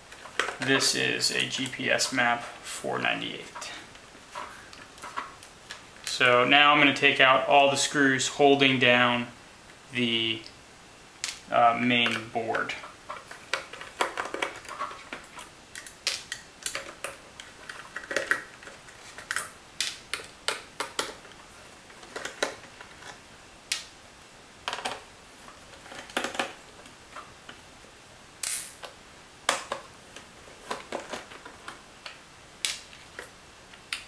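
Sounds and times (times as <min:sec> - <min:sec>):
plastic case being handled: 0:29.5 - 0:31.8.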